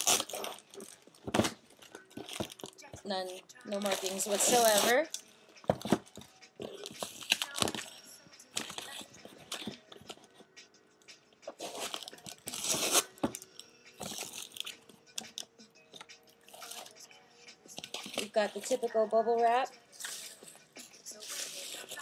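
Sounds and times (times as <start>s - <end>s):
box tape tearing: 0.0s - 2.8s, 3.7s - 5.2s, 6.7s - 7.9s, 11.5s - 13.4s
bubble wrap crinkling: 0.0s - 5.2s, 6.6s - 8.0s, 11.6s - 13.4s, 14.0s - 14.8s, 21.1s - 22.0s.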